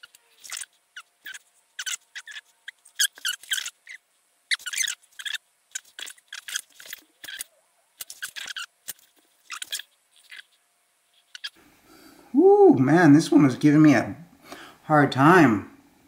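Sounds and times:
fingers scratching and rustling: 0.0s - 11.6s.

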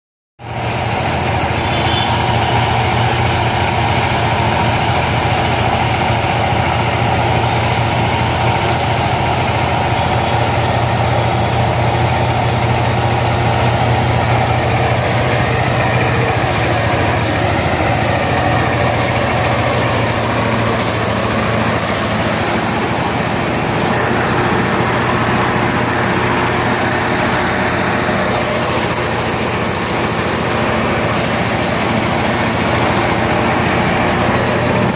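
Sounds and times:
thresher engine hum: 0.4s - 34.9s
rushing clatter of spinning drum: 28.3s - 34.9s.

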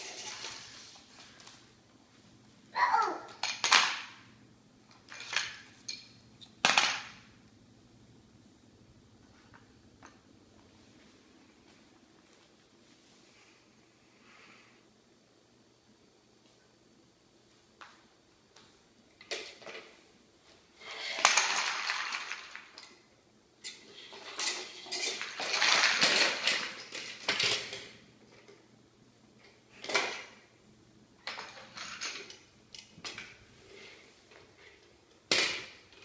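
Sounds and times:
plastic toys rattling on wood floor: 0.0s - 1.0s, 3.3s - 4.2s, 5.0s - 7.2s, 19.2s - 20.0s, 20.8s - 23.0s, 23.7s - 28.5s, 29.7s - 30.4s, 31.2s - 33.4s.

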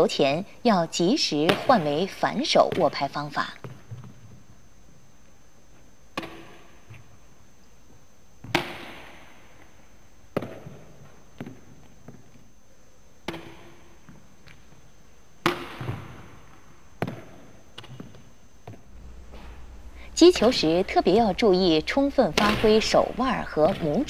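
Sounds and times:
racket striking shuttlecock: 15.4s - 16.2s.

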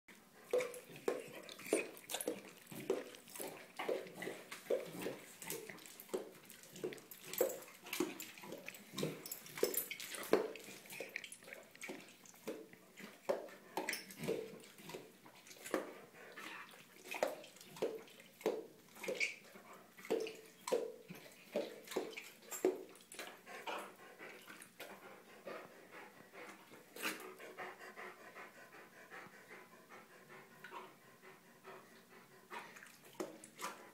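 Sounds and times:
dog gulping and licking lips: 0.1s - 33.9s.

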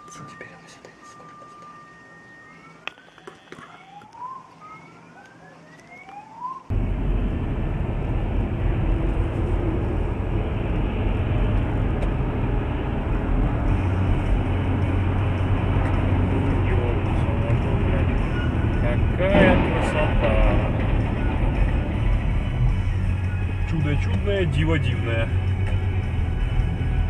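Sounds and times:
vehicle engine and road noise: 5.7s - 27.0s.

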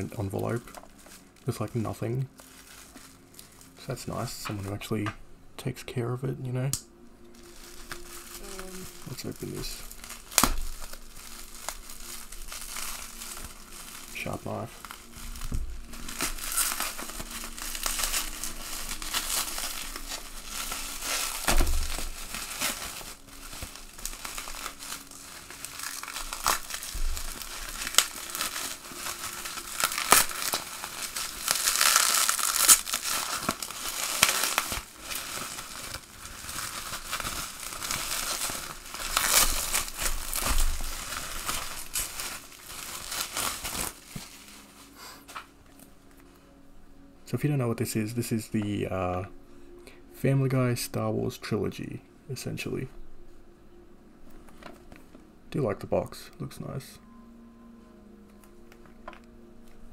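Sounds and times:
bubble wrap crinkling: 0.0s - 5.1s, 6.7s - 59.9s.

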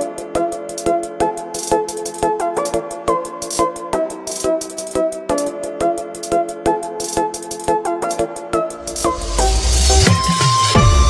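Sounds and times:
rising hiss: 8.8s - 10.8s
deep bass: 8.8s - 11.0s.

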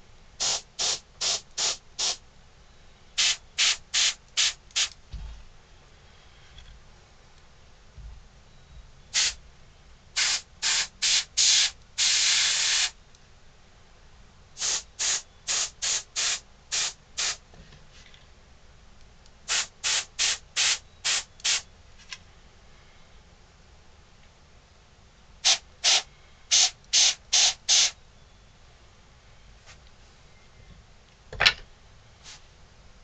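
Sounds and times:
airbrush spraying hiss: 0.4s - 2.2s, 3.2s - 5.0s, 9.1s - 9.4s, 10.2s - 13.0s, 14.6s - 17.4s, 19.5s - 21.6s, 25.4s - 28.0s.

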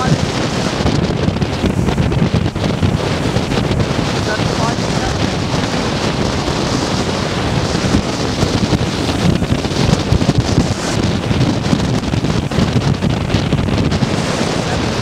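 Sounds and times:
heavy surf breaking: 0.0s - 15.0s
wind buffeting microphone: 0.0s - 15.0s.

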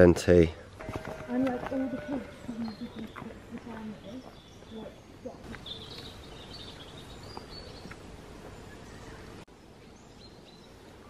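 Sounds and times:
faint outdoor background: 0.0s - 11.0s
small bird chirping and trilling: 2.0s - 8.0s.

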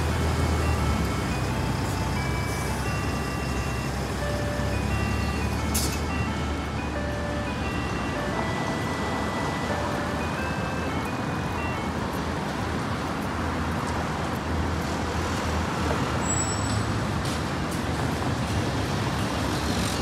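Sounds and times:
pedestrian crossing melody: 0.0s - 20.0s
road traffic hum: 0.0s - 20.0s.

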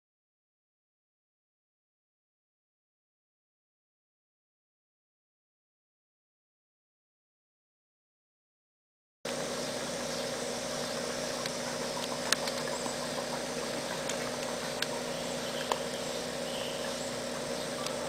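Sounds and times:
small engine running: 9.3s - 18.0s
sharp clicks: 11.4s - 12.8s, 13.7s - 16.0s.

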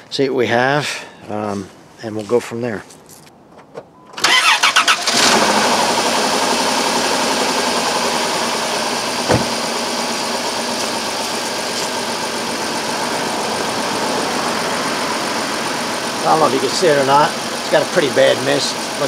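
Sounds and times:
car engine cranking: 3.2s - 19.0s
car engine idling roughly with a miss: 5.2s - 19.0s.

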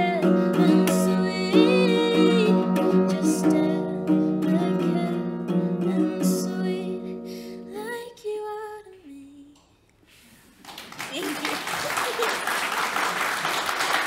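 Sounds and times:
acoustic guitar strumming: 0.0s - 8.0s
woman singing: 0.0s - 9.6s.

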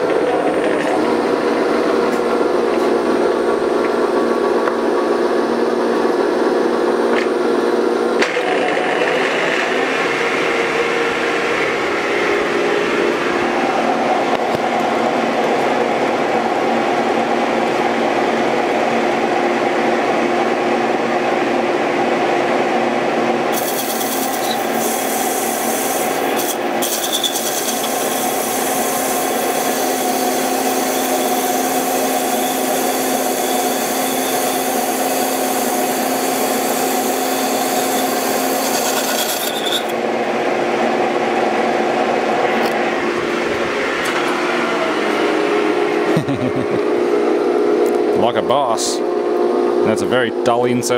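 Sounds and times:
lathe whining: 0.0s - 48.2s
cutting tool scraping steel: 23.5s - 40.0s.

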